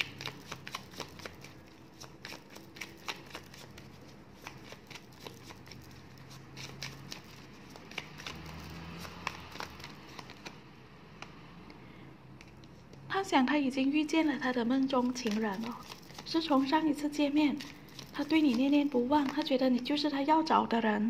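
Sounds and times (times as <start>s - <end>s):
cards being shuffled: 0.0s - 10.6s, 14.8s - 16.9s, 17.5s - 19.9s.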